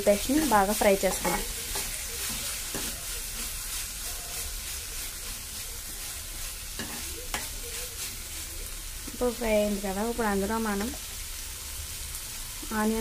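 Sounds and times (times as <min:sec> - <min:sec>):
food sizzling in a pan: 0:00.0 - 0:13.0
steel spatula scraping a pan: 0:00.1 - 0:08.7.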